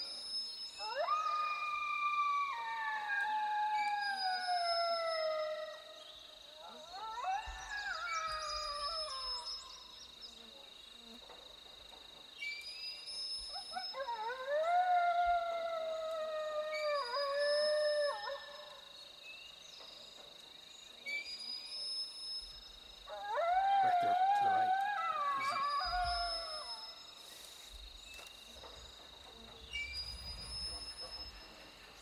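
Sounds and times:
coyote howls: 0.8s - 9.9s, 13.5s - 18.9s, 23.1s - 27.1s.

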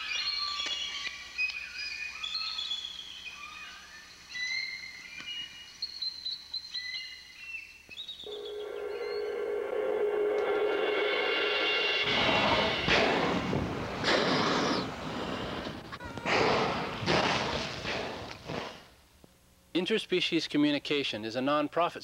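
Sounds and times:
birds singing: 0.0s - 9.4s.

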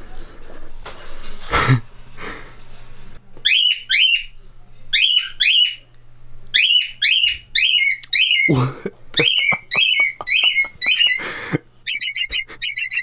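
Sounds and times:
cockatiel whistling: 3.4s - 4.3s, 6.6s - 8.5s, 9.2s - 11.2s, 11.9s - 13.0s.

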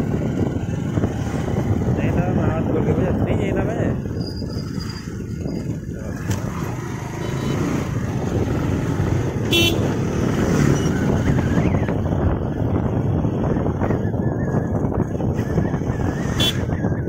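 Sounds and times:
motorcycle riding: 0.0s - 17.0s
vehicle horn beep: 7.2s - 7.7s, 9.5s - 9.9s, 16.4s - 16.7s.

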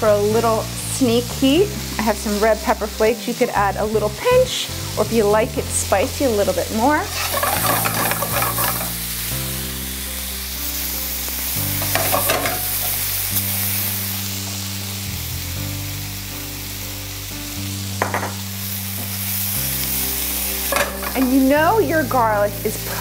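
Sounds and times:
soft background music: 0.0s - 23.0s
vegetables sizzling in oil: 0.0s - 23.0s
spatula scraping skillet: 6.8s - 9.2s, 11.8s - 13.1s, 20.6s - 21.6s.

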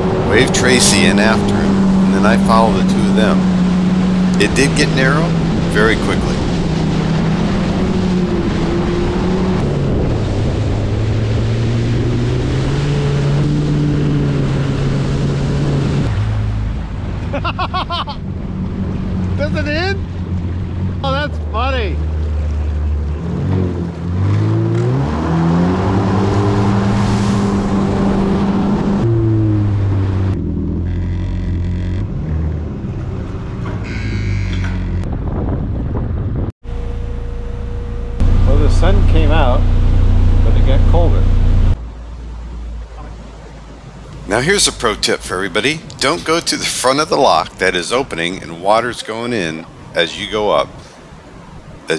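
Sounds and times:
personal watercraft engine drone: 0.0s - 51.9s
wind buffeting microphone: 5.2s - 16.1s, 34.5s - 36.5s.

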